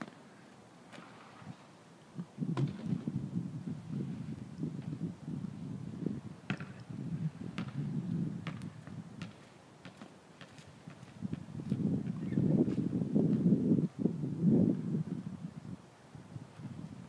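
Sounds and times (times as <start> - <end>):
wind buffeting microphone: 2.2 - 9.4, 10.7 - 17.0.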